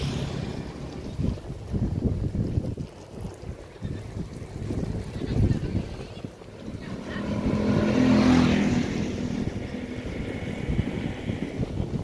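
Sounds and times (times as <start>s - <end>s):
vehicle engine passing: 0.0s - 1.4s, 5.5s - 11.9s.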